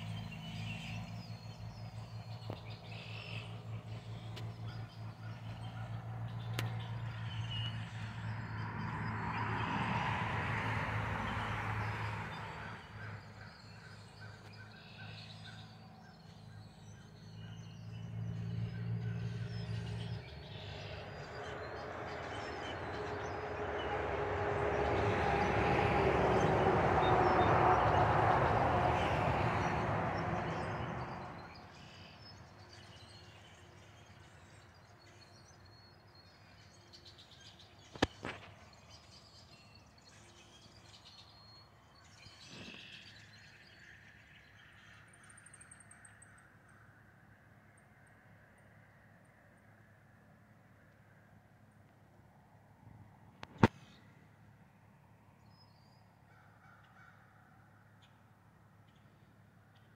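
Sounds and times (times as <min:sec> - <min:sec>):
vehicle passing by: 0:00.0 - 0:34.7
songbirds chirping: 0:00.0 - 0:59.9.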